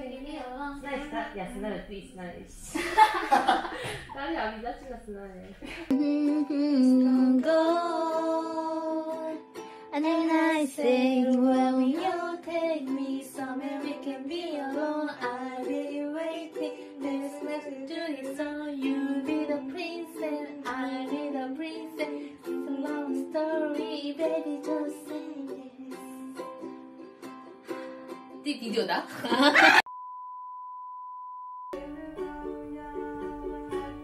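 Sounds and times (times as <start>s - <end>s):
woman singing: 5.9s - 26.8s, 31.8s - 34.0s
ukulele strumming: 5.9s - 28.7s, 31.8s - 34.0s.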